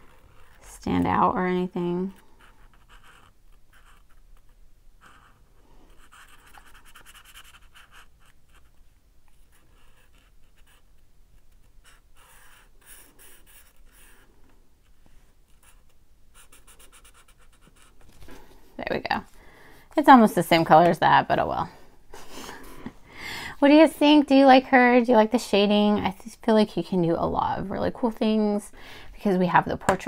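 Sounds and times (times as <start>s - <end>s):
marker scratching on paper: 2.4s - 18.0s.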